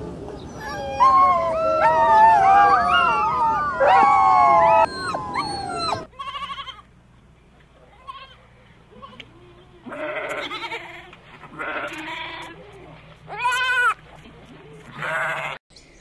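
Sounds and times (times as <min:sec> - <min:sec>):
puppies whining and howling: 0:00.4 - 0:06.1
goat bleating: 0:06.1 - 0:06.9, 0:07.9 - 0:14.0, 0:14.8 - 0:15.6.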